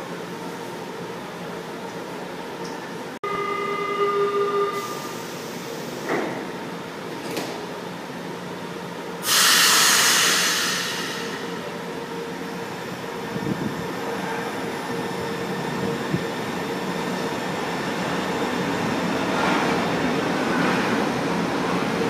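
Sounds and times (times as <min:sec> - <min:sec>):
door-closing warning tone: 0:03.2 - 0:06.3
train doors sliding shut: 0:04.9 - 0:07.7, 0:09.2 - 0:11.6
hiss of released air: 0:09.2 - 0:11.6.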